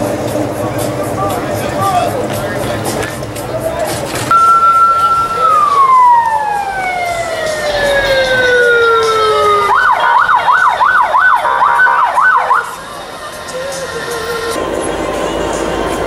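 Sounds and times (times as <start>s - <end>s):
siren fast wail: 4.3s - 12.8s
siren winding down: 4.3s - 12.8s.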